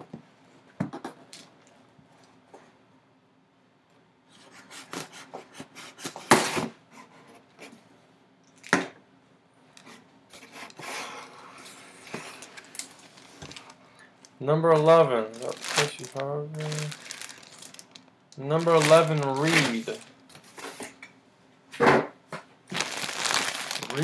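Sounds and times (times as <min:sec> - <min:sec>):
cardboard rustling: 0:14.8 - 0:20.8, 0:22.7 - 0:24.0.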